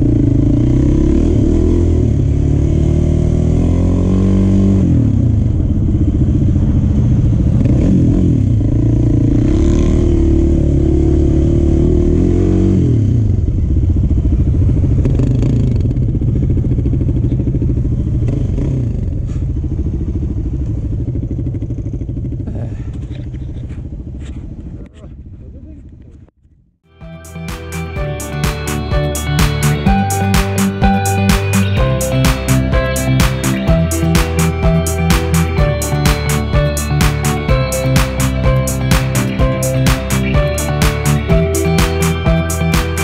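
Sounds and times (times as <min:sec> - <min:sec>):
quad engine revving: 0:00.0 - 0:20.4.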